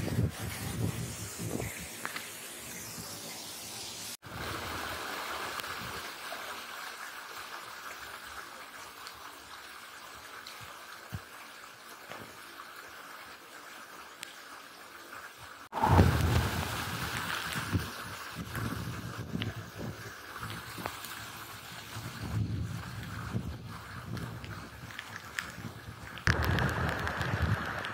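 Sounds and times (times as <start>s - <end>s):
heavy rain: 4.2s - 11.1s, 15.6s - 27.9s.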